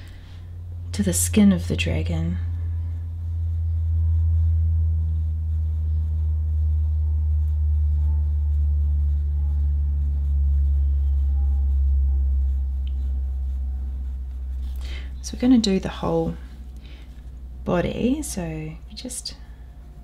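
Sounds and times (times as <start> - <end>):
loud low hum: 0.0 - 20.0
pencil scratching on paper: 5.1 - 16.5.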